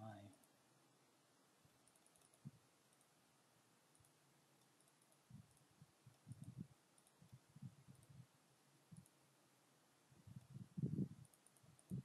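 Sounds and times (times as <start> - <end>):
faint computer mouse clicks: 1.8 - 3.2, 3.9 - 8.2, 8.9 - 9.2, 11.2 - 12.0.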